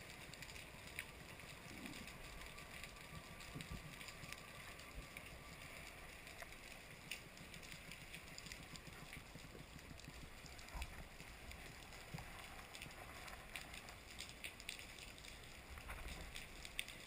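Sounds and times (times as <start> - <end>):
underwater rumble and hiss: 0.0 - 17.0.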